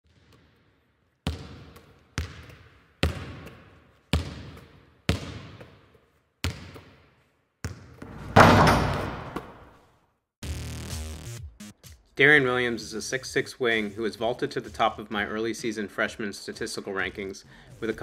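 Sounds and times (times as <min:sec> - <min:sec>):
basketball bouncing on hard floor: 0:07.6 - 0:09.6.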